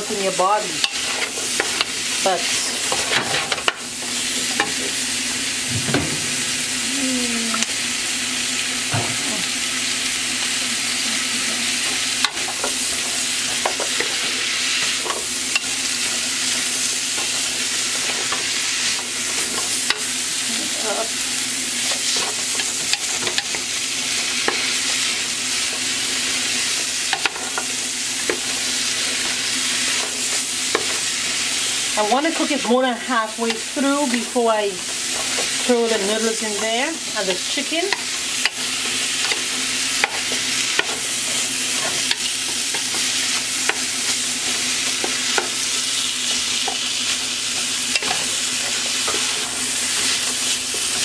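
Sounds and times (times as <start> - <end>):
vegetables sizzling in oil: 0.0 - 51.0.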